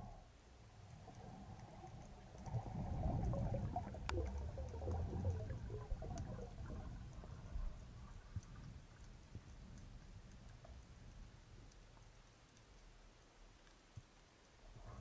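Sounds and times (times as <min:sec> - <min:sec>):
faint ticks: 0:00.0 - 0:15.0
underwater rumbling swash: 0:00.9 - 0:09.7.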